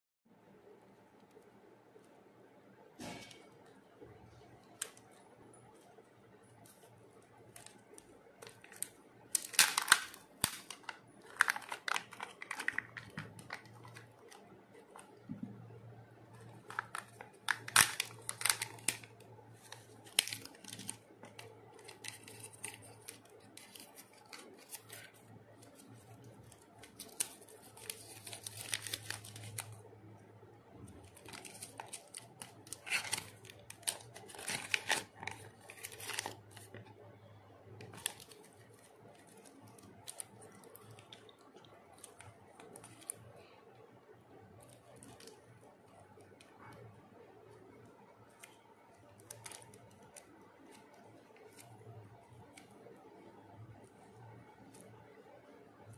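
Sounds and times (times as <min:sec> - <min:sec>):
paper sticker sheet crinkling: 0:06.7 - 0:15.2, 0:16.3 - 0:29.9, 0:31.0 - 0:36.9, 0:37.8 - 0:41.3, 0:49.2 - 0:51.9
plastic pieces clicking and rustling: 0:07.5 - 0:15.2, 0:16.4 - 0:29.8, 0:31.0 - 0:36.8
foil seal peeling off plastic: 0:16.7 - 0:25.0.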